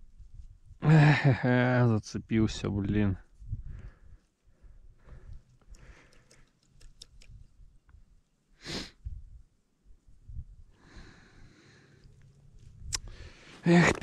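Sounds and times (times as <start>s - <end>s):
sharp breath through the nose: 8.6s - 9.1s, 10.8s - 12.1s, 13.0s - 13.6s.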